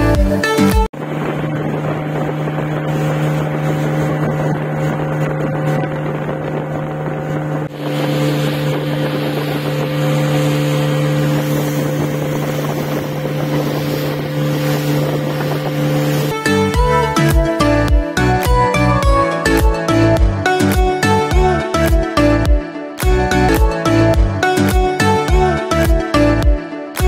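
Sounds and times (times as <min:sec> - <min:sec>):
motorboat engine humming: 0:00.0 - 0:27.0
water rushing along hull: 0:00.0 - 0:27.0
wind on microphone: 0:00.9 - 0:18.8.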